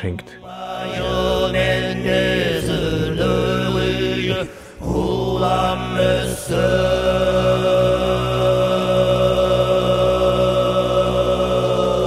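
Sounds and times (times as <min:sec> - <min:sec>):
overtone chanting: 0:00.0 - 0:12.0
person breathing: 0:04.4 - 0:04.9.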